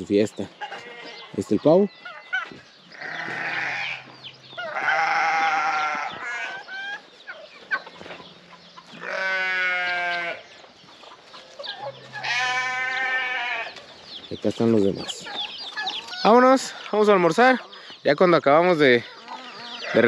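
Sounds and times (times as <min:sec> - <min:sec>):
roosters crowing: 0:00.5 - 0:14.0, 0:18.7 - 0:20.0.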